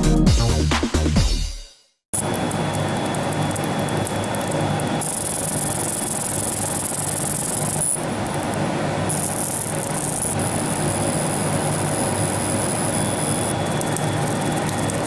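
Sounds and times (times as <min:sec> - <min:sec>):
high-pitched machine whine: 0:02.2 - 0:15.0
machine hum: 0:02.2 - 0:15.0.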